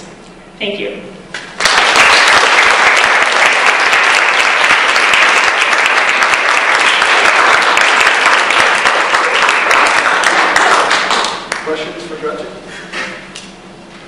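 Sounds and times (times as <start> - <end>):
audience clapping: 1.4 - 12.0.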